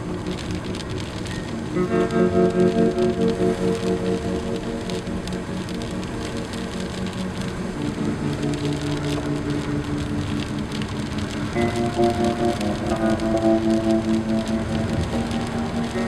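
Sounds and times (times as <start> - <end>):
rain pattering: 0.0 - 16.0
soft background music chords: 0.0 - 16.0.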